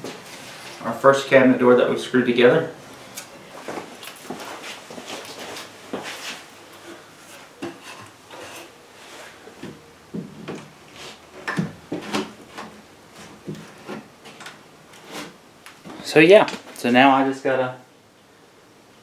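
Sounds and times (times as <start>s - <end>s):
wood scraping: 3.6s - 16.8s.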